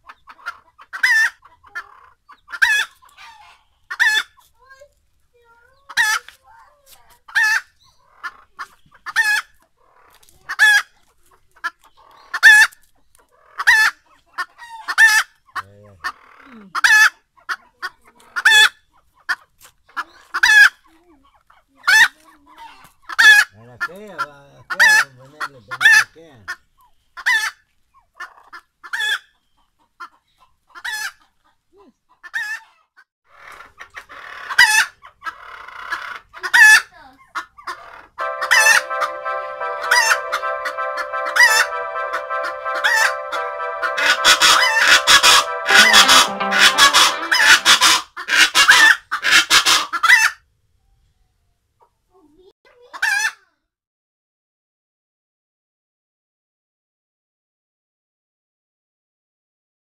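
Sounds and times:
chickens calling loudly: 0.0 - 4.5, 5.8 - 6.3, 7.3 - 20.8, 21.5 - 26.6, 33.4 - 50.3.

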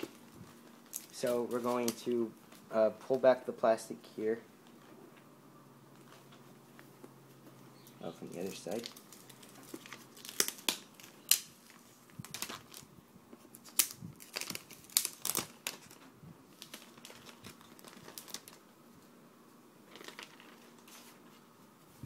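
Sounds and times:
plastic film crinkling: 0.0 - 3.2, 8.0 - 18.7, 19.8 - 21.3.

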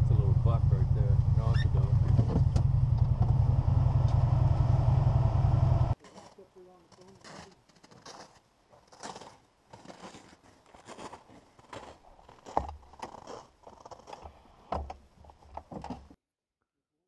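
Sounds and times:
footsteps crunching on snow: 6.0 - 14.2.

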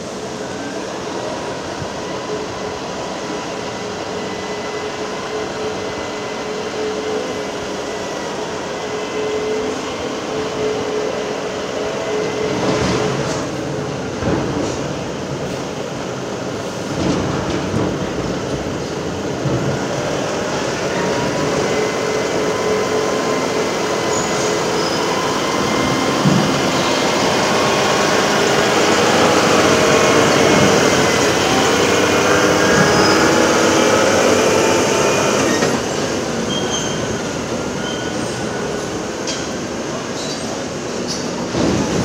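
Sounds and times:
track chains squealing: 23.9 - 26.0, 36.4 - 38.9.

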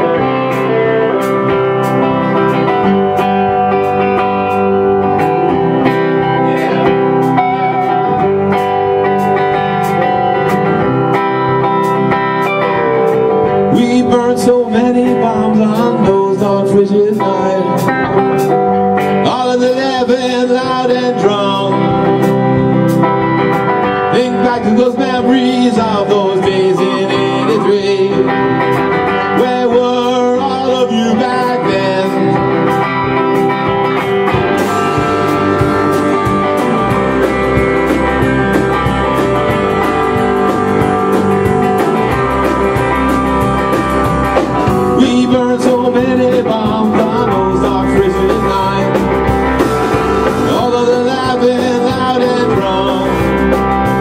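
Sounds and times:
drum kit: 0.0 - 54.0
electric guitars: 0.0 - 54.0
lead vocals: 12.2 - 54.0.

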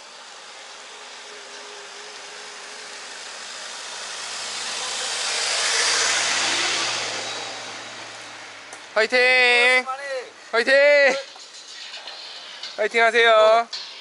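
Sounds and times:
car driving past: 0.6 - 9.0.

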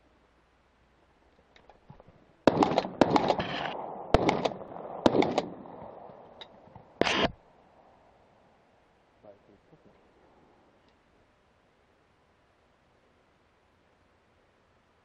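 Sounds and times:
shotgun firing: 2.5 - 7.4.

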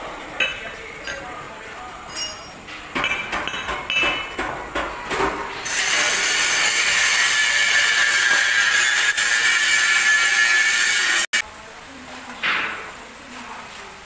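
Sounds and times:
hammer striking steel: 2.1 - 4.6.

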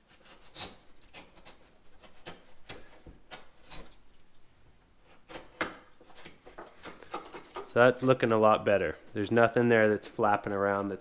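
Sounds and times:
utility knife scraping drywall: 0.0 - 4.0, 5.0 - 8.4.

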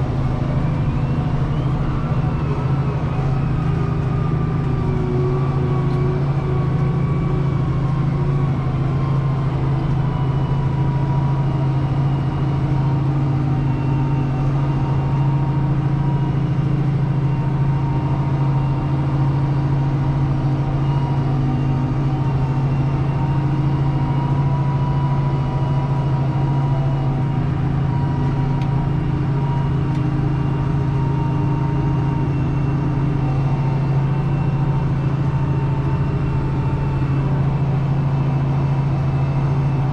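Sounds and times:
steady whining tones: 0.0 - 39.9
tractor diesel engine drone: 0.0 - 39.9.

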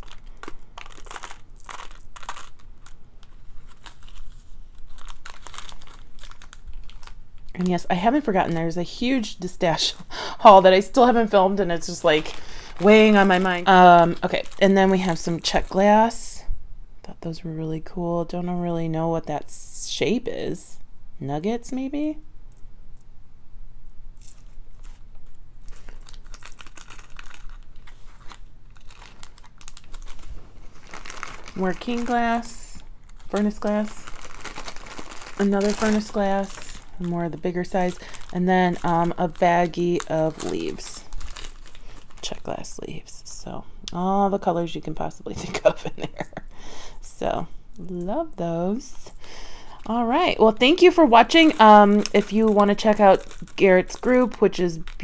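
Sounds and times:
plastic bag crinkling: 0.0 - 16.2, 24.2 - 43.4, 49.1 - 55.0.

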